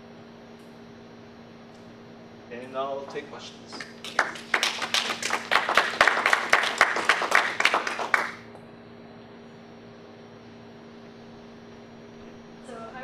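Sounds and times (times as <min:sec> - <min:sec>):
steady electrical hum: 0:00.0 - 0:13.0
audience applauding: 0:03.8 - 0:08.5.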